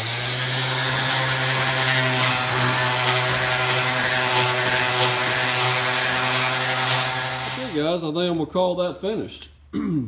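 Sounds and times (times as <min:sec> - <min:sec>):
orbital sander motor hum: 0:00.0 - 0:07.8.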